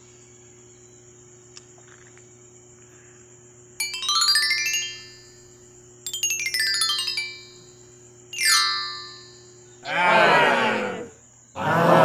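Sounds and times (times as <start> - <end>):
cricket chorus: 0.0 - 12.0
falling run of chime notes: 3.8 - 5.5, 6.1 - 9.6.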